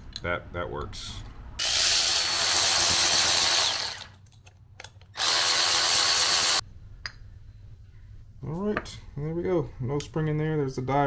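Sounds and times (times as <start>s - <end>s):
electric ratchet whirring: 1.6s - 4.2s, 5.1s - 6.6s.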